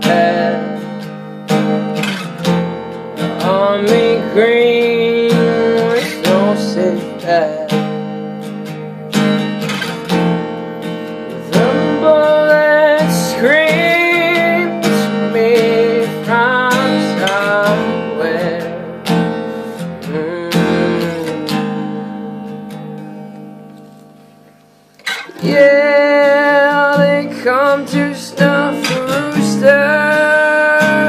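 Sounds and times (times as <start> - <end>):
acoustic guitar strumming: 0.0 - 31.0.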